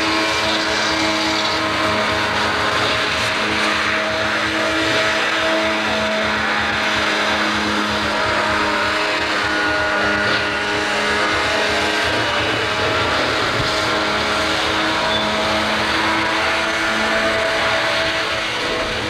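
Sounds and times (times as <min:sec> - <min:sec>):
hovercraft engine droning: 0:00.0 - 0:19.0.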